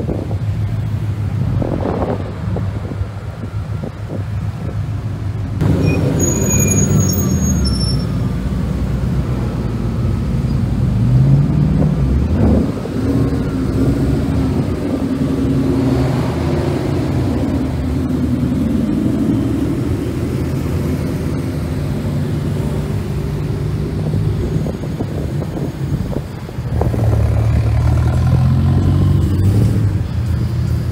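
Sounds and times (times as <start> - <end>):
cars driving slowly past: 0.0 - 30.9
car engine revving: 26.7 - 30.1.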